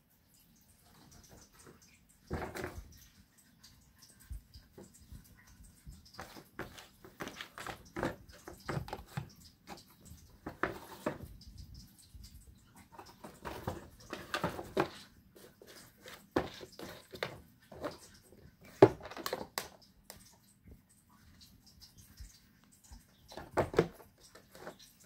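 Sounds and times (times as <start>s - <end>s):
cat scratching cardboard box: 6.1s - 11.4s, 12.8s - 18.0s.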